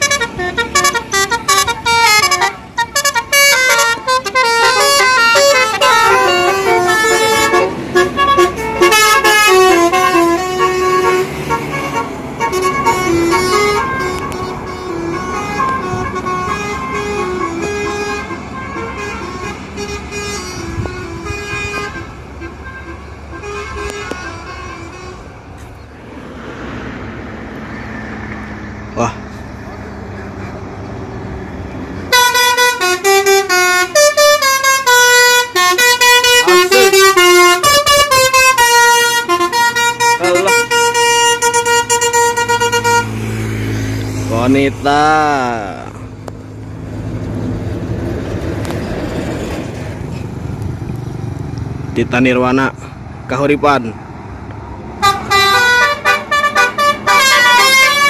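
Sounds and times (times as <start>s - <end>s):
musical bus horn tune: 0.0s - 25.4s, 32.1s - 43.4s, 55.0s - 58.0s
bus engines and tyres on road: 0.0s - 58.0s.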